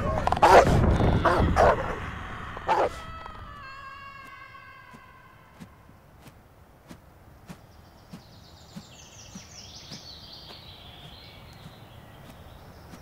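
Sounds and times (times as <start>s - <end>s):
low background rumble: 0.0s - 13.0s
bird twittering trill: 7.3s - 13.0s.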